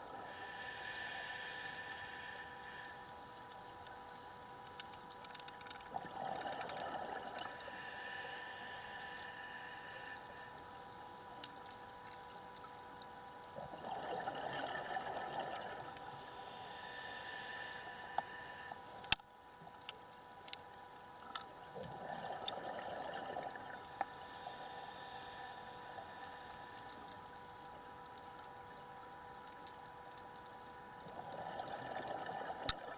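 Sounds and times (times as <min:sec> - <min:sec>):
faint steady hum: 0:00.0 - 0:32.9
regulator inhale hiss: 0:00.1 - 0:03.5, 0:07.4 - 0:10.7, 0:15.7 - 0:19.1, 0:23.9 - 0:27.3
exhaled bubbles: 0:05.9 - 0:07.9, 0:13.6 - 0:16.0, 0:21.8 - 0:23.9, 0:31.0 - 0:32.9.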